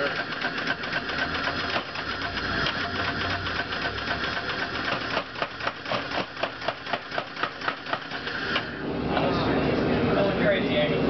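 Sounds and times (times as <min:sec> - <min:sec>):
power hammer pounding steel: 0:00.0 - 0:08.7.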